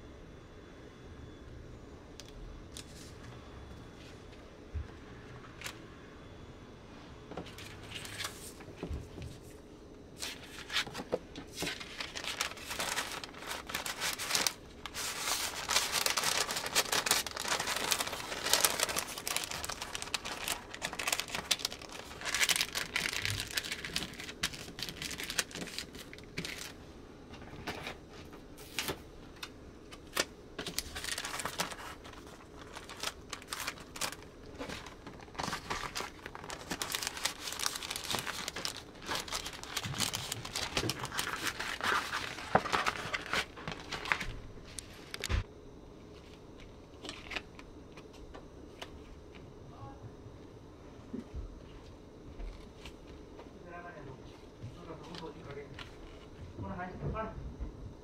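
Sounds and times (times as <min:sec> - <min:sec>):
paper crinkling and rustling: 0:07.4 - 0:26.8, 0:27.4 - 0:45.5, 0:46.1 - 0:49.4, 0:54.3 - 0:56.4.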